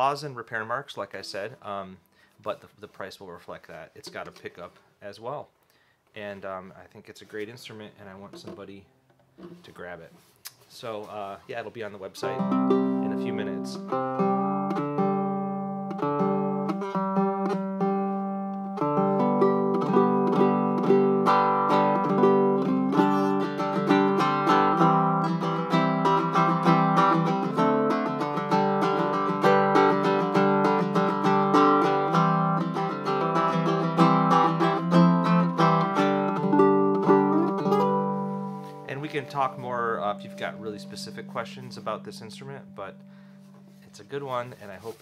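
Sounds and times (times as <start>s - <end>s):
ukulele chords: 12.0s - 43.8s.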